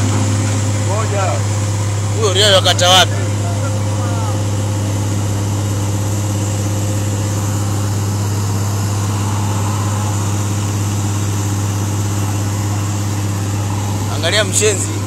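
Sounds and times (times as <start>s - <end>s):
diesel truck engine idling: 0.0s - 15.0s.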